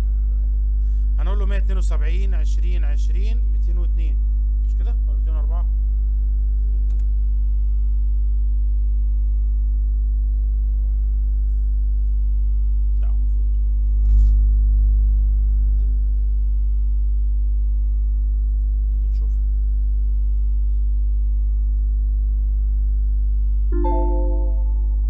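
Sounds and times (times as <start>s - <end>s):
electrical mains hum: 0.0s - 13.8s.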